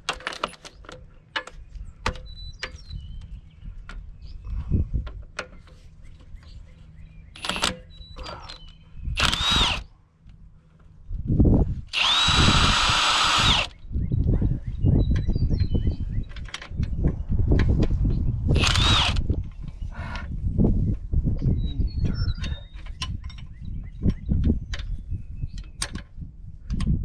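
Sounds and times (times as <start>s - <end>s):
power drill whining: 9.2s - 9.8s, 11.9s - 13.8s, 18.5s - 19.3s.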